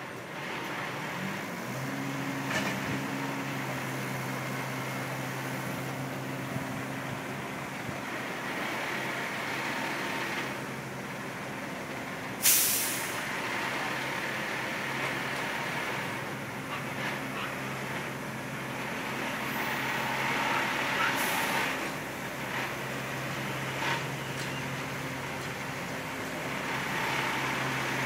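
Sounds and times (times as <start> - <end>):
truck low mechanical hum: 0.0 - 28.0
air hiss release: 12.4 - 13.2.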